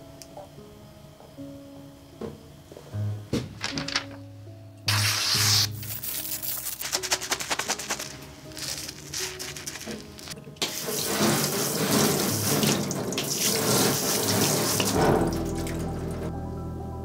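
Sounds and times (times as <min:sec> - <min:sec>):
water spraying on knife blade: 0:04.9 - 0:15.2.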